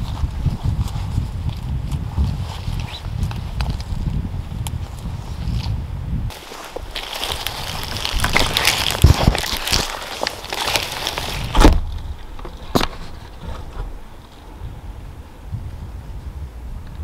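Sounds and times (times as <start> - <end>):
footsteps through leafy ground cover: 6.3 - 11.6
clothing rustle: 6.3 - 14.5.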